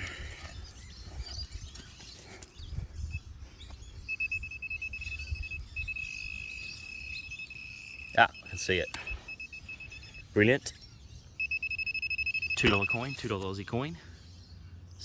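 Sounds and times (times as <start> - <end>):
metal detector probe beeping: 4.0 - 10.6, 11.4 - 13.6.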